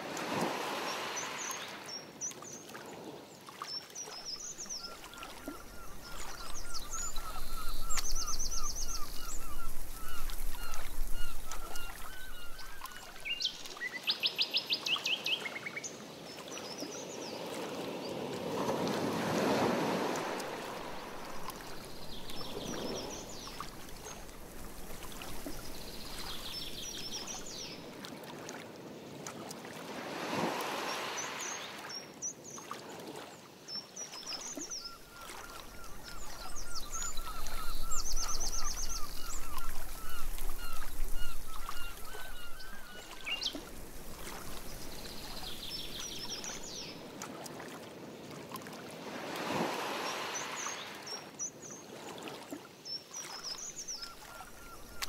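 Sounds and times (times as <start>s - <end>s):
water sloshing around paddle: 0.0s - 13.9s, 17.6s - 32.0s, 32.6s - 51.2s, 51.9s - 55.0s
birds chirping: 4.4s - 13.7s, 34.6s - 47.0s.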